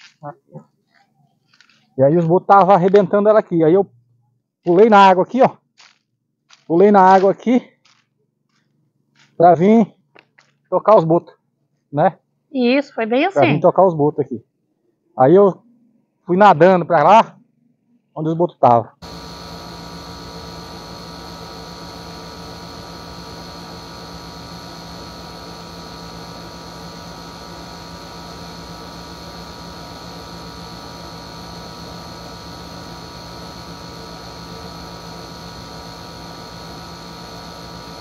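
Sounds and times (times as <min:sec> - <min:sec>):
electrical hum and hiss: 0:19.0 - 0:38.0
high whine: 0:19.0 - 0:38.0.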